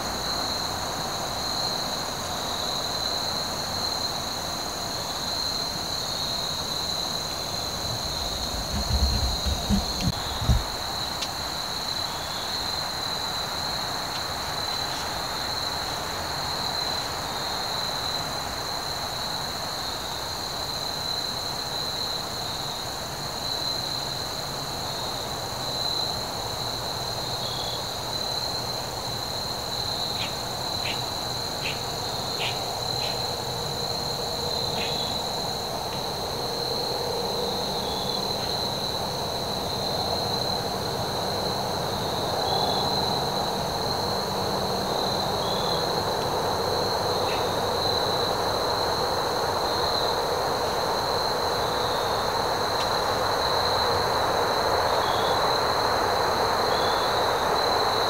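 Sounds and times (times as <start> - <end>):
insects trilling: 0.0 - 58.0
low steady rumble: 7.8 - 10.9.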